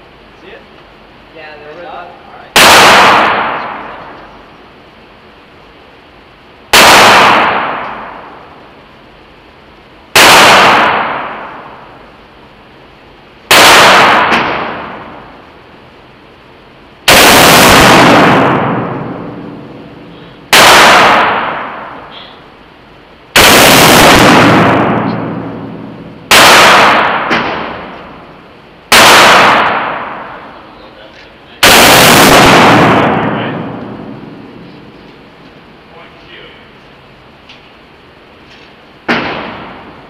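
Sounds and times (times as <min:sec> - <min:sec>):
rifle shots ringing indoors: 0:02.5 - 0:04.6, 0:06.6 - 0:08.8, 0:10.1 - 0:12.3, 0:13.5 - 0:15.5, 0:16.2 - 0:30.8, 0:31.6 - 0:35.8, 0:37.6 - 0:40.0.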